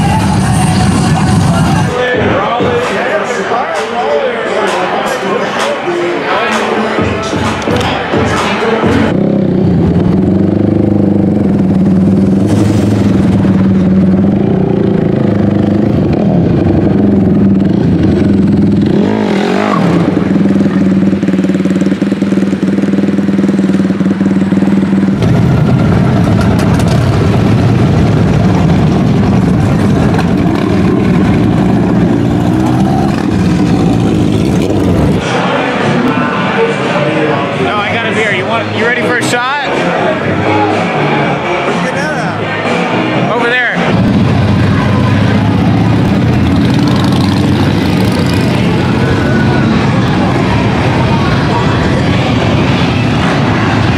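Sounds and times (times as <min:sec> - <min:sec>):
dirt bike engine idling: 0:08.9 - 0:35.4, 0:43.9 - 0:53.9.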